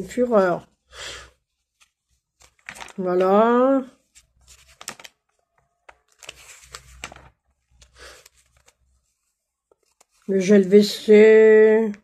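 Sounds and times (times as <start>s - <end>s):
faint rustling and handling: 0.0s - 11.3s.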